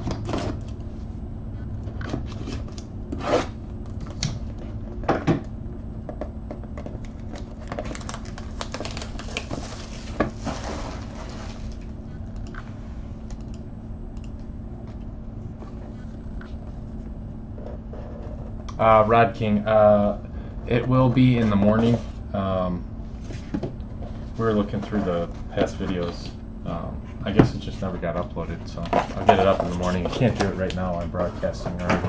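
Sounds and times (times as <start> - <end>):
cardboard rustling: 6.8 - 11.8, 27.3 - 32.0.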